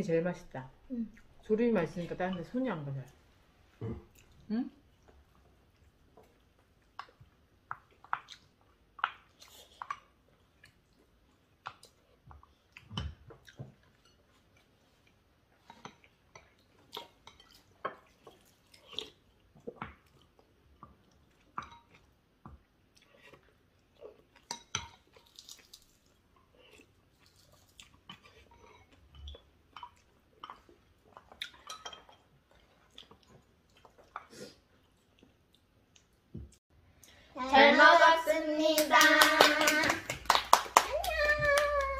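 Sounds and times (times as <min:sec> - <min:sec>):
chewing: 0:03.8 - 0:36.2.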